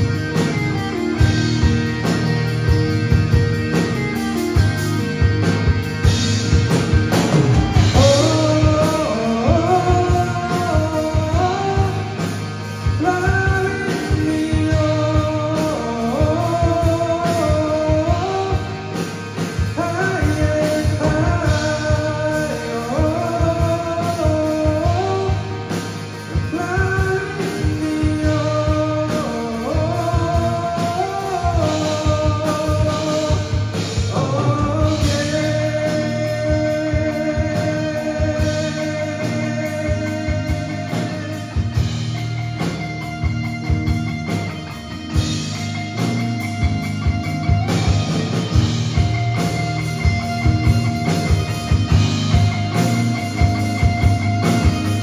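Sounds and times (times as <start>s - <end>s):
bass guitar: 0.0s - 55.0s
drum kit: 0.0s - 55.0s
electric guitars: 0.0s - 55.0s.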